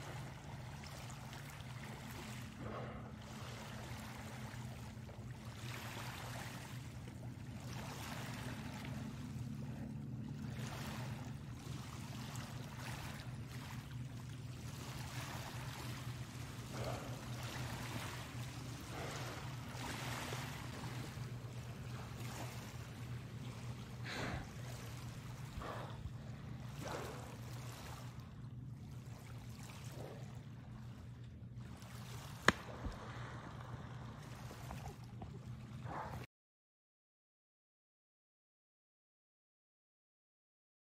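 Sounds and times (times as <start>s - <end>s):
low hum: 0.0s - 36.3s
waves lapping on pebbles: 31.8s - 34.8s.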